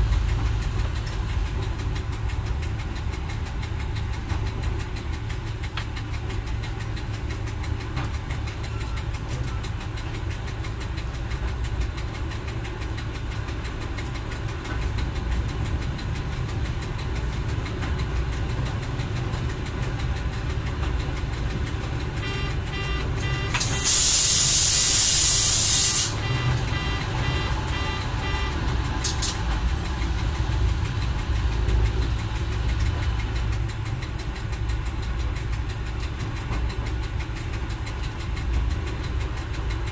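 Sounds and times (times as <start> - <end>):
diesel railcar engine drone: 0.0 - 39.9
track noise: 0.0 - 39.9
short repeated tones: 22.2 - 29.0
loud hiss: 23.6 - 26.2.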